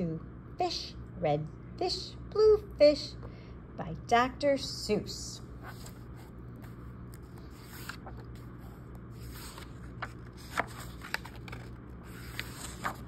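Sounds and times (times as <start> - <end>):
low steady hum: 0.0 - 13.0
book pages turning: 5.6 - 13.0.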